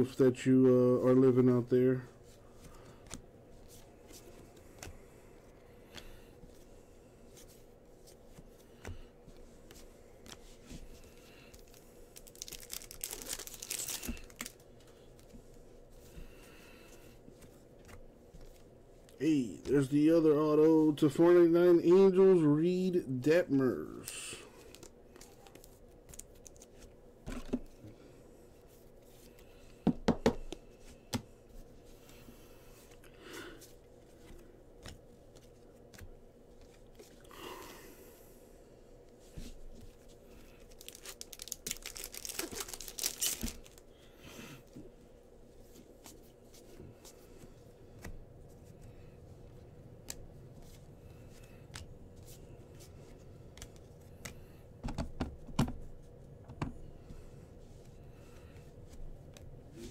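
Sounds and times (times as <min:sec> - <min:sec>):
wrapper tearing and crinkling: 0:11.6 - 0:14.6, 0:40.7 - 0:43.8.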